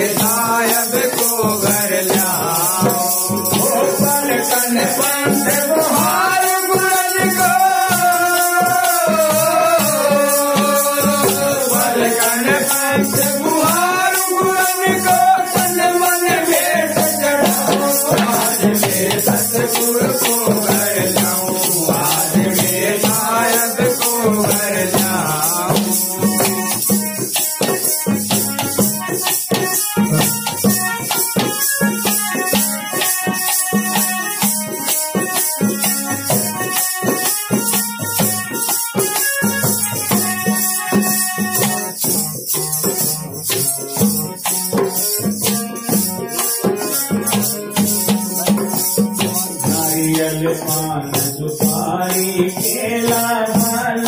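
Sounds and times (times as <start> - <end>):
man singing: 0.0 - 27.3, 46.4 - 54.0
held instrumental melody: 0.0 - 54.0.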